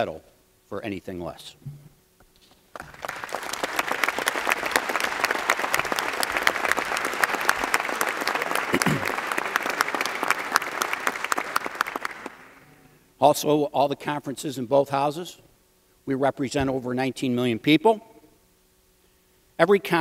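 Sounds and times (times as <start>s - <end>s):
crowd applauding: 2.8s - 12.6s.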